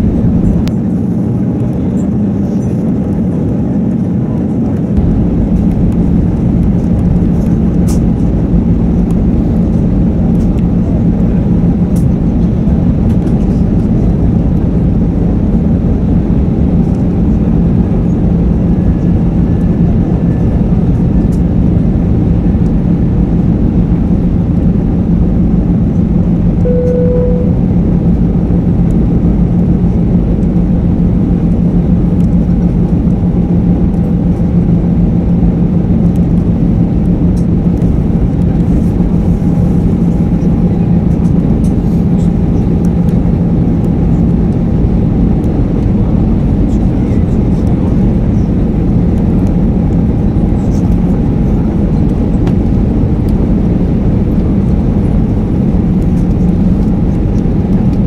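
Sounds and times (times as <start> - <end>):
aircraft cabin engine rush: 0.0 - 58.0
constant low hum: 0.0 - 58.0
short faint tone: 26.6 - 27.8.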